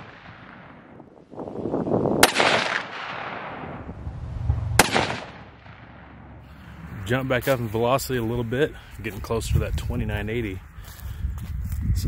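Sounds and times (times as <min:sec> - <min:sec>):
rifle shot with echo: 0:00.0 - 0:01.1, 0:02.2 - 0:04.0, 0:04.7 - 0:06.4.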